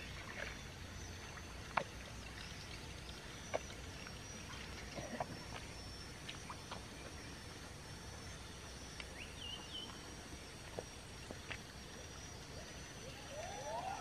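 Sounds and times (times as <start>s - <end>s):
faint splashes: 0.0s - 7.2s
thin steady high tone: 0.0s - 14.0s.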